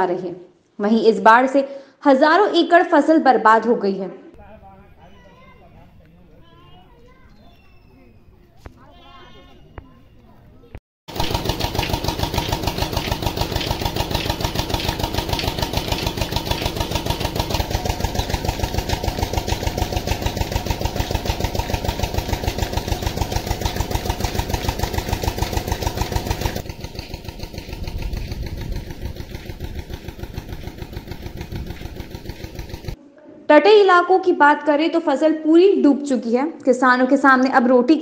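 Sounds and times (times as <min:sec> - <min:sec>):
engine running steadily: 0:11.1 - 0:33.0.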